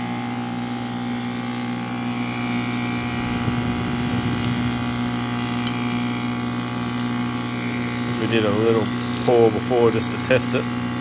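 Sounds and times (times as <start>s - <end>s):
furnace electrical hum: 0.0s - 11.0s
faint whine: 2.0s - 8.1s.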